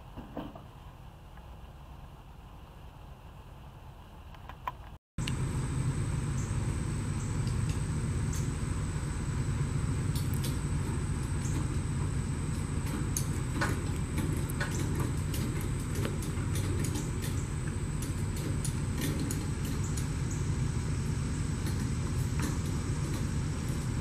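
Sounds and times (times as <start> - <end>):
faint high whine: 5.2 - 15.0
low engine rumble: 5.2 - 24.0
light clicks and ticks: 10.1 - 11.8.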